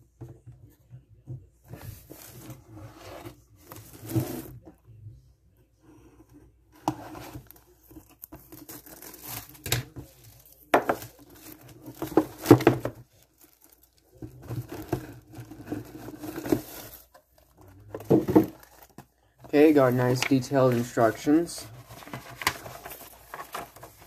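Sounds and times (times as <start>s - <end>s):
plastic wrap tearing and crinkling: 8.5s - 9.9s, 10.9s - 17.0s
cardboard box handled: 10.9s - 24.0s.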